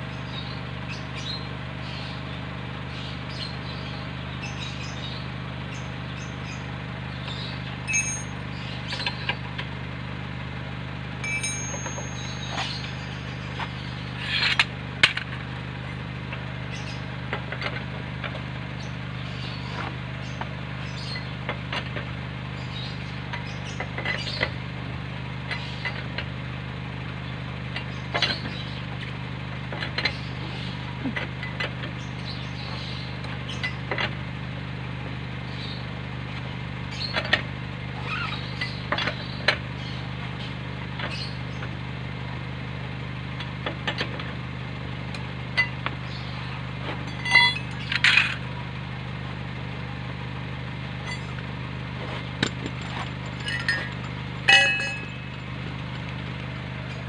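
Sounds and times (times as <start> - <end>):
ringing metal clink: 7.9 - 8.4, 11.2 - 12.9, 47.1 - 47.9, 51.0 - 51.4, 52.4 - 55.6
steady low hum: 45.6 - 57.0.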